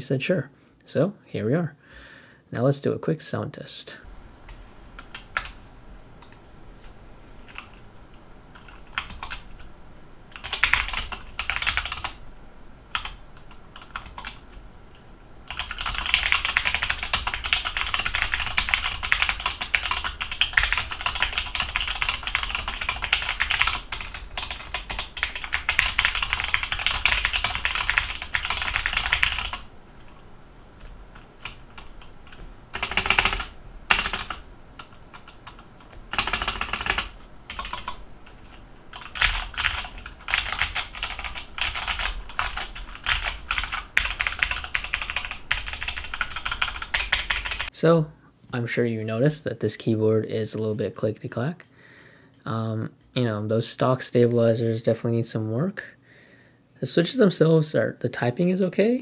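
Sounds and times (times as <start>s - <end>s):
mechanical keyboard typing: 7.4s - 7.8s, 8.5s - 9.6s, 10.3s - 12.2s, 12.9s - 14.5s, 15.5s - 30.2s, 30.8s - 47.7s.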